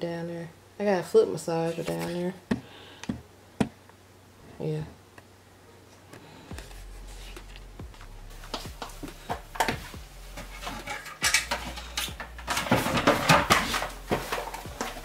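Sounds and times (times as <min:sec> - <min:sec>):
cardboard boxes scraping and rustling: 0:01.6 - 0:02.3, 0:09.1 - 0:15.0
household items knocking and clattering: 0:08.5 - 0:15.0.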